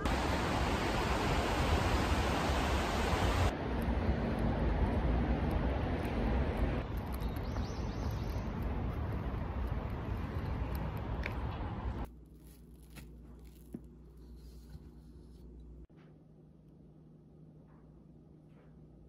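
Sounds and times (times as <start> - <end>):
rushing outdoor noise: 0.0 - 12.1.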